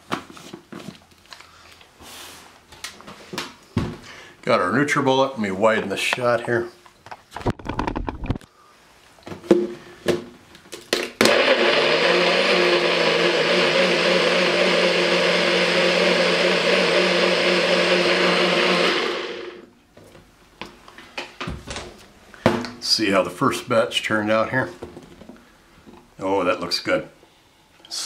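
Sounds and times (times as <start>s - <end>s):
blender motor running: 11.2s - 19.7s.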